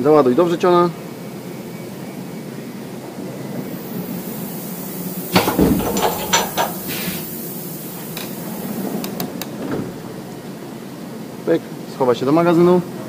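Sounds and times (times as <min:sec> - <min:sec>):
steady machine hum: 0:03.6 - 0:11.9
machine clunk: 0:05.3 - 0:07.3, 0:09.3 - 0:10.6
mechanical clicks and knocks: 0:05.4 - 0:06.9.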